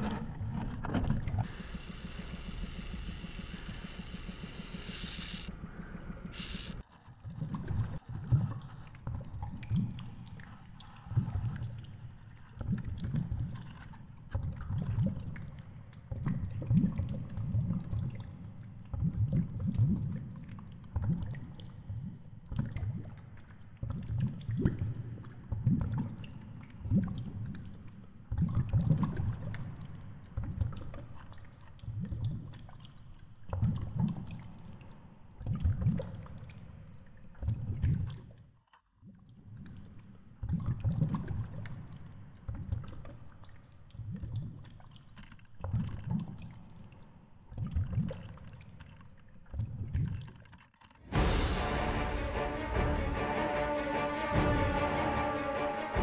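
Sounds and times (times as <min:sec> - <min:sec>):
motor hum: 0:01.4 - 0:06.8.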